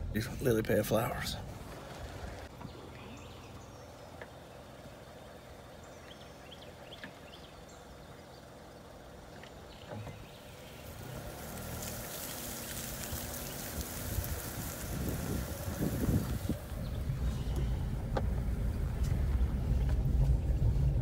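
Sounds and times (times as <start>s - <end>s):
vehicle engine running: 0.0s - 21.0s
wind rushing over microphone: 13.0s - 21.0s.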